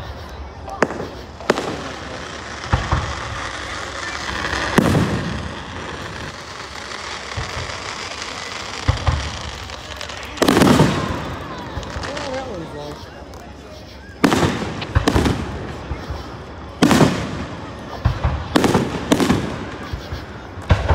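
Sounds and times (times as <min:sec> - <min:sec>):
firework bangs: 0:00.0 - 0:20.9
fireworks crackling: 0:00.0 - 0:20.9.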